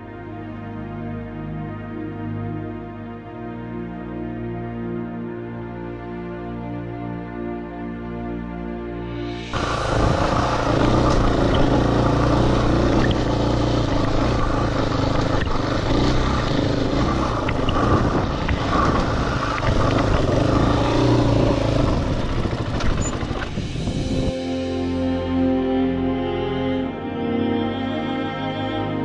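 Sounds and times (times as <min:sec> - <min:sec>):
dirt bike engine running: 0:09.5 - 0:24.3.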